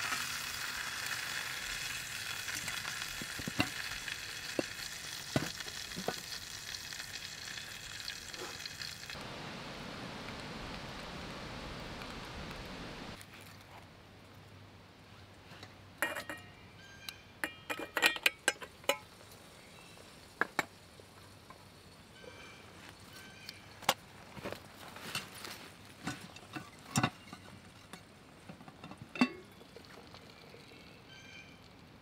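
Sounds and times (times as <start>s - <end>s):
metal pots and pans clinking: 1.8s - 6.4s, 16.0s - 16.5s, 17.4s - 19.1s, 26.0s - 29.7s.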